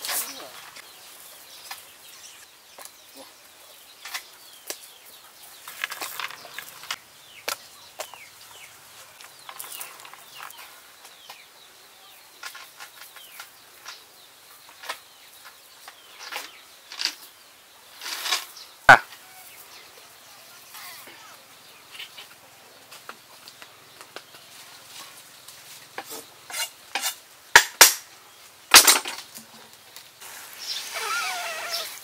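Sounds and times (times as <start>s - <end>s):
faint birds chirping: 0.0s - 32.0s.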